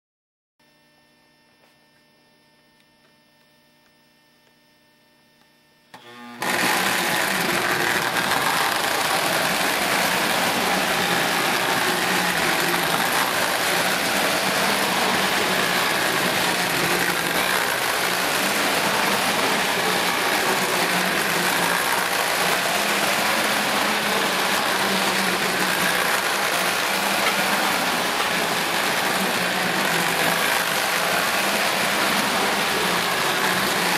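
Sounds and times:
model train running on track: 6.0s - 33.9s.

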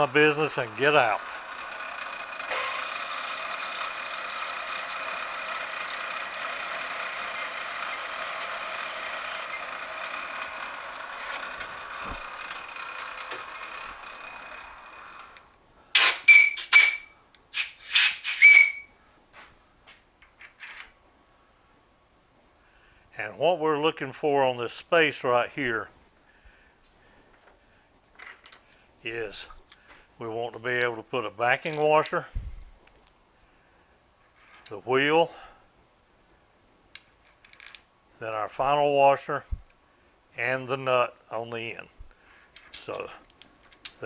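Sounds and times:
metal lathe whining: 0.0s - 15.4s.

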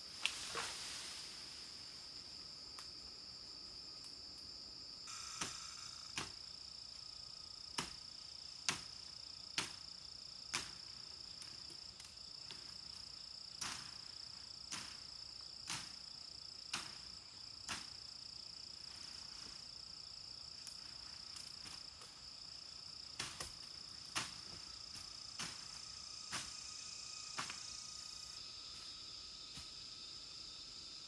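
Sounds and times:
insects droning: 0.0s - 31.0s
blade chopping wood: 8.7s - 8.9s.

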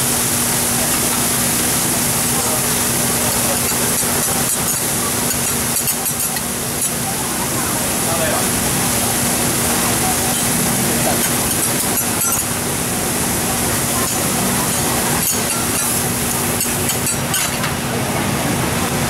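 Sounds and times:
food sizzling on a griddle: 0.0s - 17.8s.

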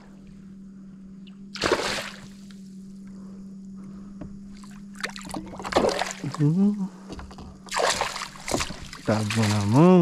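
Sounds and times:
fish splashing at surface: 1.6s - 2.4s, 7.7s - 9.8s.

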